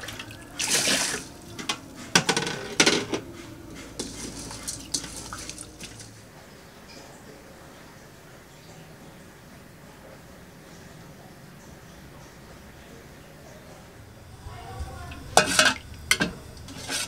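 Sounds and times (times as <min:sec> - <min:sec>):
water splashing in a pot: 0:00.0 - 0:03.3, 0:04.0 - 0:06.2, 0:14.3 - 0:17.0
hands stirring rice grains: 0:00.0 - 0:06.2, 0:14.4 - 0:17.0
cup and pots knocking: 0:01.6 - 0:03.3, 0:15.2 - 0:17.0.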